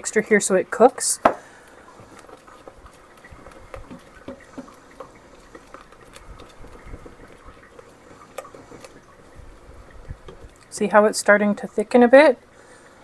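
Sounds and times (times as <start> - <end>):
spatula tap: 1.2 - 1.5, 2.2 - 7.4
puree bubbling and popping: 1.4 - 11.0.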